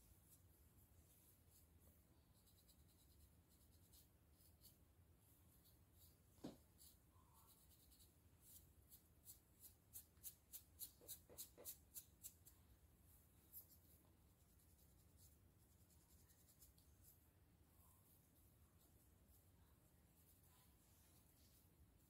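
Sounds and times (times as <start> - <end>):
comb scratching scalp: 1.1 - 12.6, 13.4 - 17.2.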